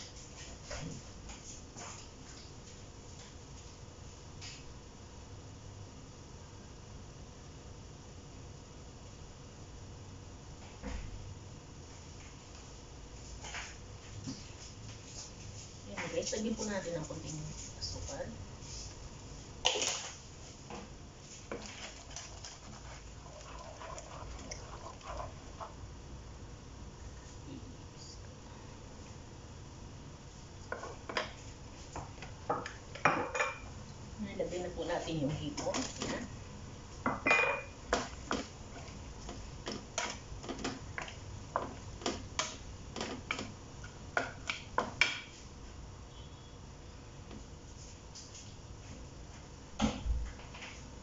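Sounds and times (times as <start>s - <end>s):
wooden spatula stirring: 21.2s - 25.9s.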